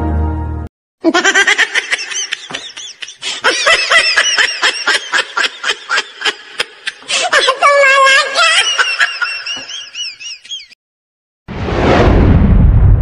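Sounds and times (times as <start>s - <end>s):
music: 0.0s - 0.7s
person laughing in short bursts: 1.0s - 7.4s.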